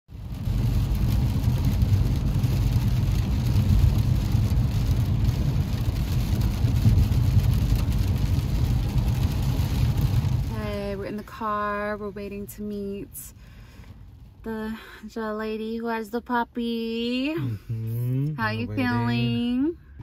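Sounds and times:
tyre and engine drone: 17.4s - 20.0s.

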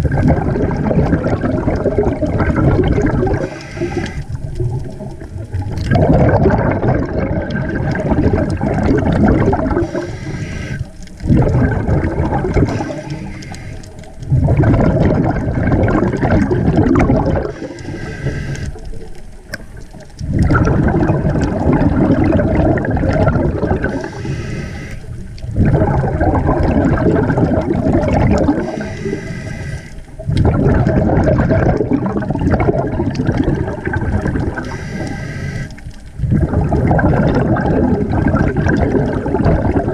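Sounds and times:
exhaled bubbles rushing underwater: 0.0s - 39.9s
regulator inhalation hiss: 3.4s - 4.4s, 9.8s - 11.0s, 12.6s - 14.1s, 17.5s - 18.8s, 23.9s - 25.2s, 28.6s - 30.1s, 34.6s - 35.8s.

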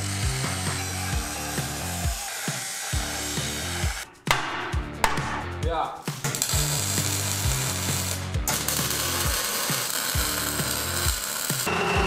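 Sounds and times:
welding crackling hiss: 0.0s - 4.1s, 6.0s - 11.8s
music with beat and bass: 0.0s - 9.4s.

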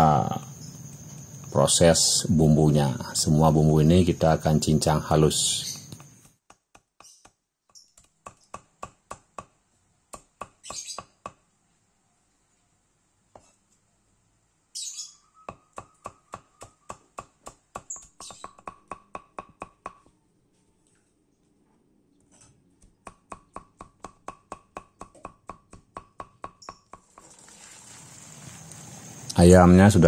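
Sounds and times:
knife chopping on wooden board: 8.1s - 9.5s, 15.5s - 20.0s, 22.8s - 27.3s.

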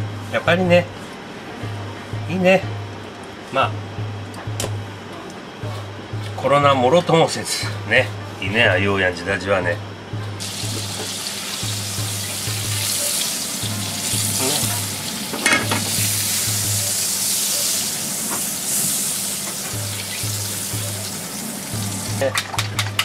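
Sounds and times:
oil sizzling in a frying pan: 10.4s - 22.3s.

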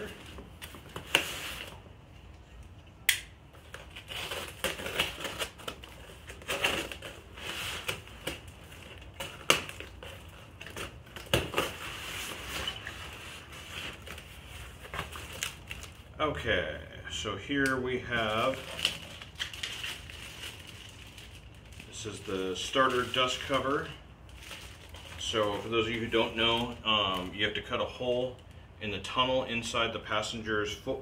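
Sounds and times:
cardboard rustling and crackling: 3.6s - 16.0s.

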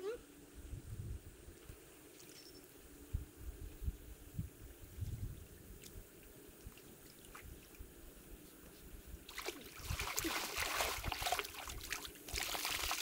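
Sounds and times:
faint water trickle: 3.7s - 13.0s
water splashing and sloshing: 6.6s - 7.8s, 9.2s - 13.0s.

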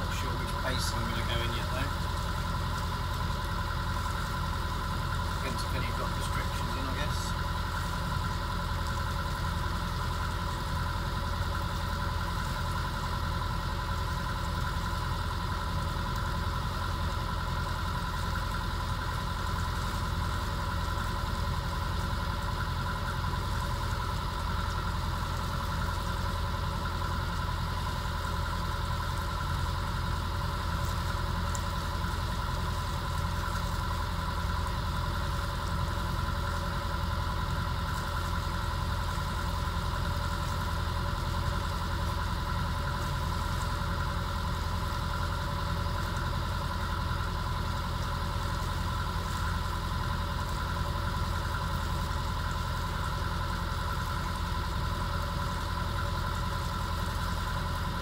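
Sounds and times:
diesel engine rumbling: 0.0s - 58.0s
mid-pitched engine hum: 0.0s - 58.0s.

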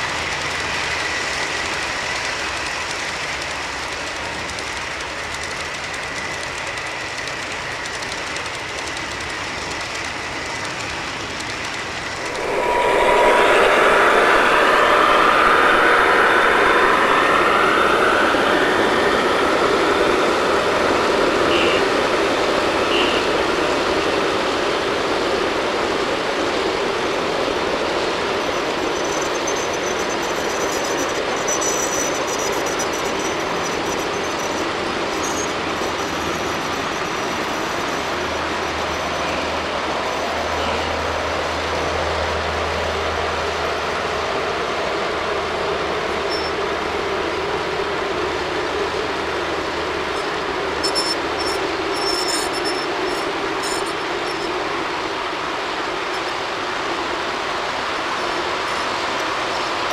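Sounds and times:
model train cars rolling: 0.0s - 12.3s
high wheel squeal: 0.0s - 24.3s, 27.8s - 42.6s, 45.8s - 57.0s.

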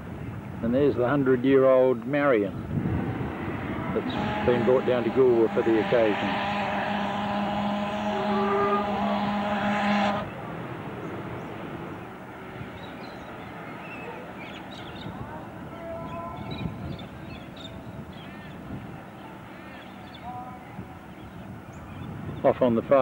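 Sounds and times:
steam whistle chord: 3.3s - 10.6s.

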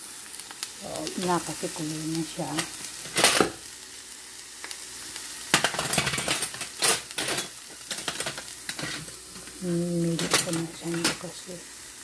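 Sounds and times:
onion sizzling in hot oil: 0.0s - 12.0s
utensil scraping a pan: 5.6s - 9.5s.

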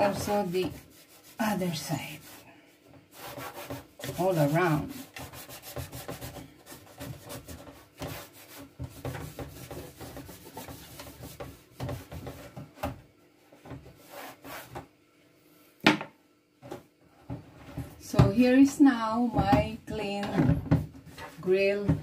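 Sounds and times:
cloth wiping plastic: 0.0s - 2.4s, 3.0s - 12.6s.

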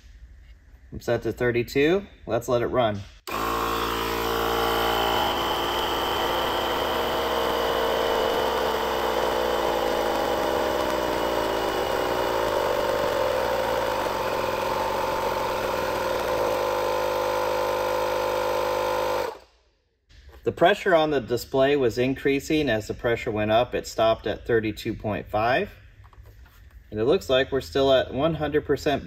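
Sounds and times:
portable air compressor running: 3.3s - 19.5s.

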